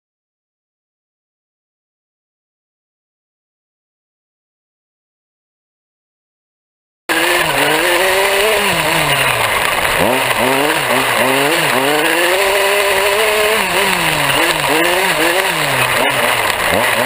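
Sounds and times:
two-stroke engine revving: 7.1s - 17.0s
wind and tyres hissing: 7.1s - 17.0s.

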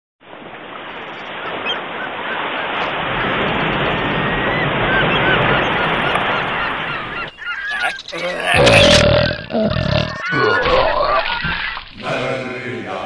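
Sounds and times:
sea surf: 0.2s - 8.6s
faint bird calls: 1.2s - 12.0s.

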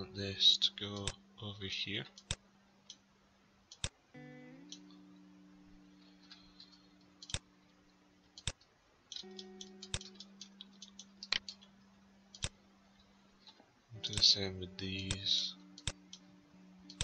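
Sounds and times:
computer mouse clicking: 3.7s - 4.0s, 6.3s - 7.5s, 8.4s - 11.7s, 12.3s - 12.6s.

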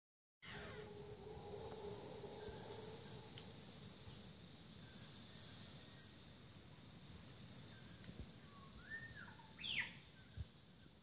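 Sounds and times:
high-pitched insect buzz: 0.4s - 10.0s
whistled bird calls: 7.7s - 10.5s.

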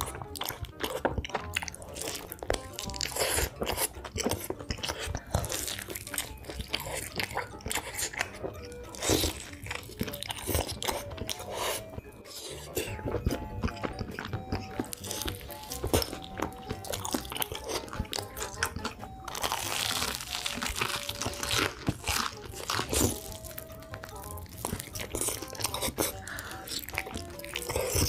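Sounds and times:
background music: 0.0s - 28.0s
crunchy food being chewed: 0.0s - 28.0s.

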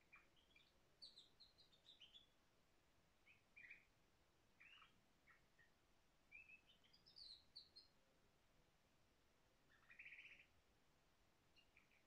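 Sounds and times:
canary singing: 4.6s - 5.4s, 9.8s - 10.5s.

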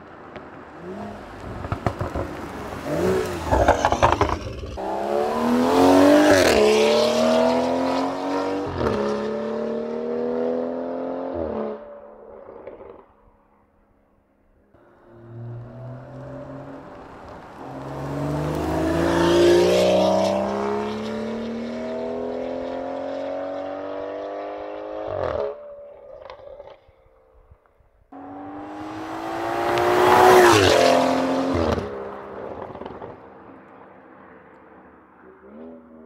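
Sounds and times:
exhaust pops and crackles: 0.3s - 4.8s, 31.5s - 33.7s
car engine accelerating hard: 0.8s - 11.7s, 14.8s - 25.5s, 28.2s - 33.1s.

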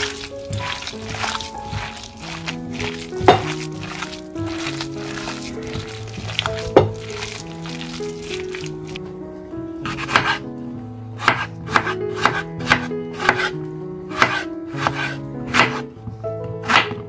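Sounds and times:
background music: 0.0s - 17.0s
knife chopping on cutting board: 0.2s - 7.3s, 9.9s - 10.4s, 11.2s - 13.6s, 14.2s - 15.9s, 16.6s - 17.0s.

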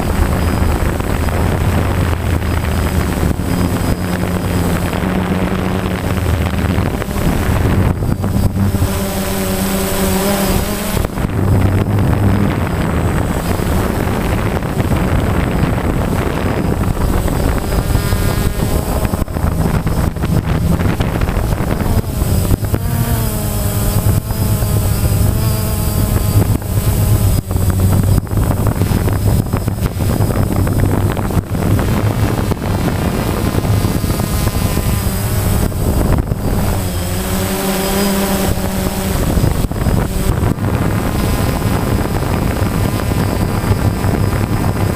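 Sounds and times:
drone propellers buzzing: 0.0s - 44.9s
wind rushing on microphone: 0.0s - 44.9s.

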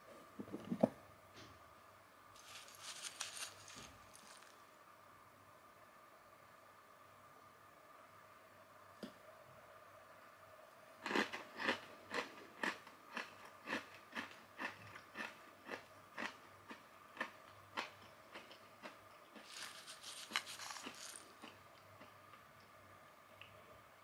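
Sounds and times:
metal spoon scraping dry mix: 2.4s - 4.5s, 19.4s - 21.3s
chewing crunchy snack: 2.4s - 4.6s, 11.0s - 22.2s.

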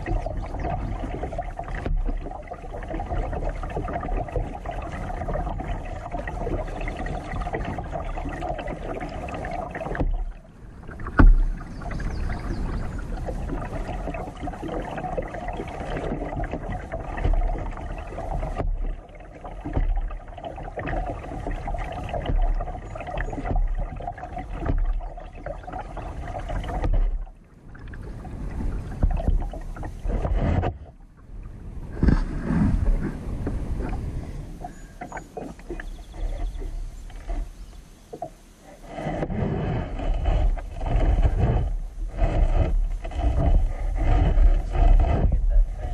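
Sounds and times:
paddle and water sounds: 0.0s - 45.9s
steady low rumble: 39.2s - 45.9s.

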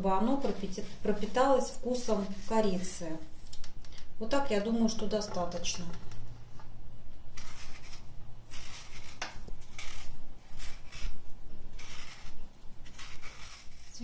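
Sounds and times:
knife scraping apple skin: 0.2s - 3.0s, 7.4s - 14.0s.

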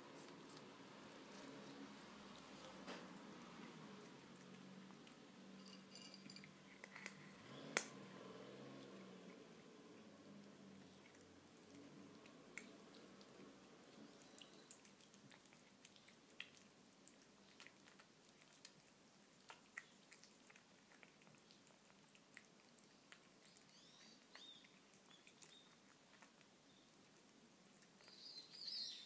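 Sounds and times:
kitten chewing and licking food: 0.0s - 29.0s
bird chirps: 28.0s - 29.0s.

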